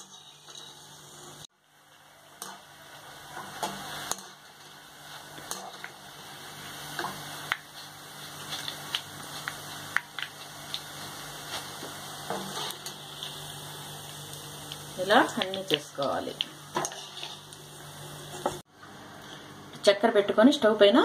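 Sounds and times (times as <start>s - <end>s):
metal spoon clinking and scraping pan: 0.0s - 1.3s, 16.8s - 17.5s
frying in hot oil with crackles: 0.0s - 21.0s.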